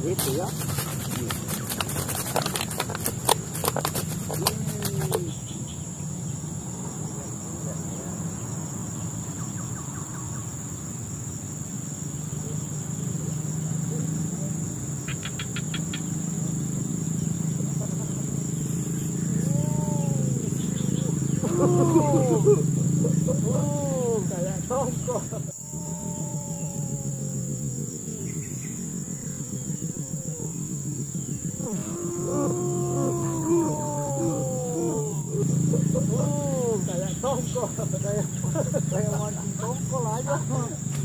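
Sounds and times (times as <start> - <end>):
rising and falling calls: 0.0 - 5.8, 17.7 - 39.9
crickets chirring: 0.0 - 41.0.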